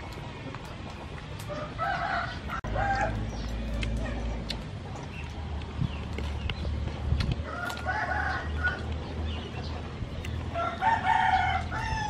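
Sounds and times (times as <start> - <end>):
rooster crowing: 1.5 - 3.2, 7.5 - 8.8, 10.6 - 12.0.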